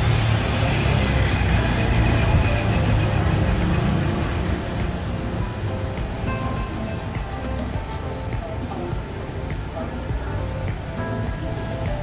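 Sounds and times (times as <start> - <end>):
small jeep engine passing: 0.0 - 12.0.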